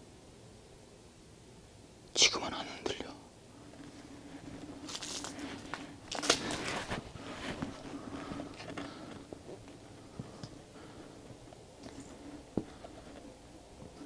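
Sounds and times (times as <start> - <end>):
faint steady hum: 0.0 - 14.0
clothing rustle: 3.7 - 14.0
footsteps crunching on gritty ground: 3.8 - 10.5.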